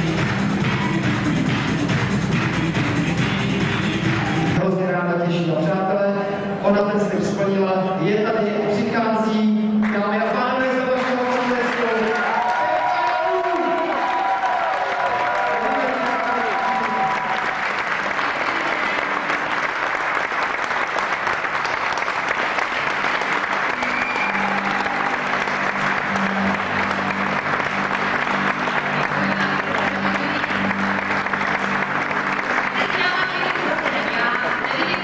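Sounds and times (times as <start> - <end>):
audience applauding: 0.0 - 4.6, 9.8 - 35.0
band playing low notes: 15.7 - 35.0.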